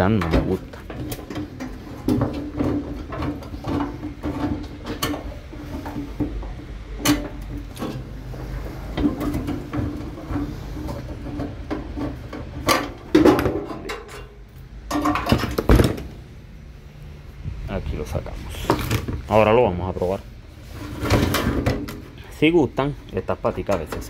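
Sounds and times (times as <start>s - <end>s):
metal knocks and clunks: 0.0s - 16.2s, 20.9s - 22.2s.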